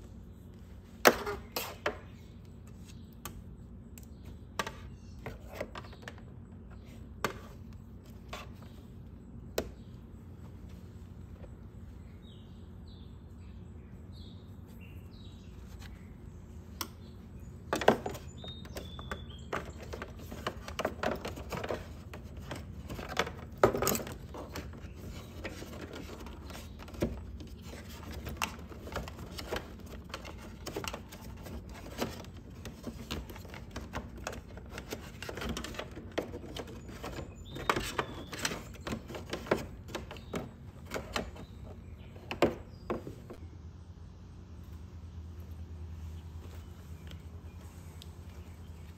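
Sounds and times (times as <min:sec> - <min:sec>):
steady low hum: 0:00.0 - 0:48.9
bird chirps: 0:12.0 - 0:20.0.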